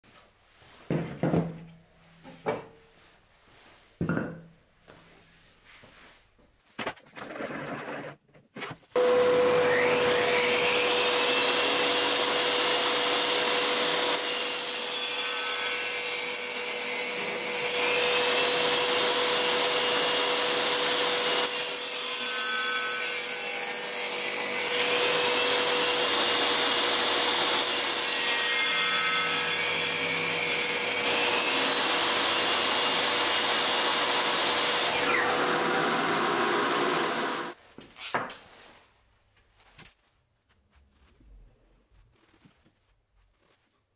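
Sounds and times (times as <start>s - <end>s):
table saw running: 9.0s - 15.6s, 17.4s - 22.7s, 24.1s - 37.6s
saw blade cutting wood: 9.0s - 37.6s.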